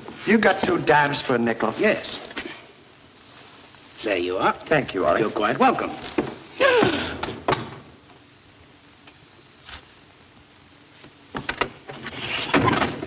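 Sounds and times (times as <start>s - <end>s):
film soundtrack hiss: 0.0s - 13.0s.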